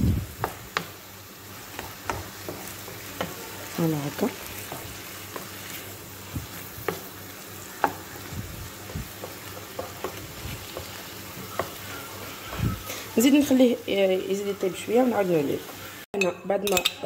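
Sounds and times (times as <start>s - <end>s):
food sizzling: 0.0s - 16.2s
spatula knocking against pan: 8.8s - 11.0s.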